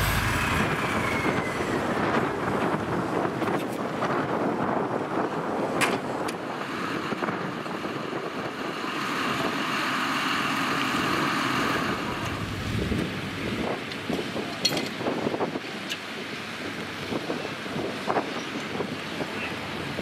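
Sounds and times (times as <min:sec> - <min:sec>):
tractor engine running: 0:00.0 - 0:03.6, 0:08.7 - 0:13.6
wind on microphone: 0:00.0 - 0:09.6, 0:11.0 - 0:20.0.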